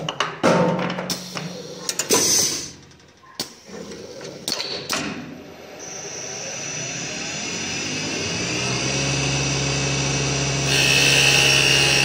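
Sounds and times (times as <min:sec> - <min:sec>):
lathe air hissing bursts: 0:10.6 - 0:12.0.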